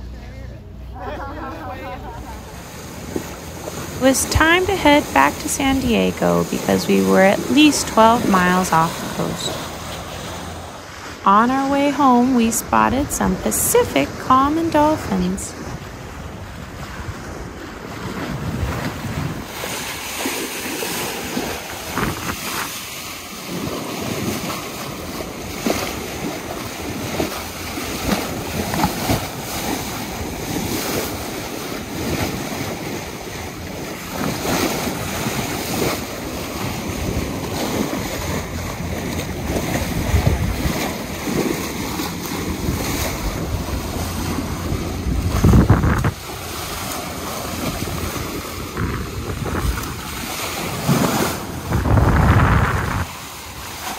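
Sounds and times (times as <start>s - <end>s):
sea water rushing along hull: 0.0s - 53.9s
wind buffeting microphone: 15.0s - 22.8s, 23.4s - 53.8s.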